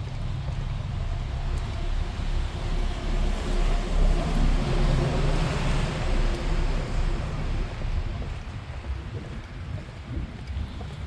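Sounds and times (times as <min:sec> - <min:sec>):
vehicle engine hum: 0:00.0 - 0:11.0
wind rumble on microphone: 0:00.0 - 0:11.0
tyre hiss on wet road: 0:00.2 - 0:08.8.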